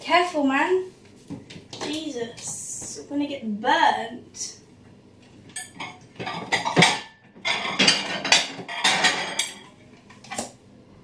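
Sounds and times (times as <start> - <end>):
plates clattering together: 5.5 - 9.8.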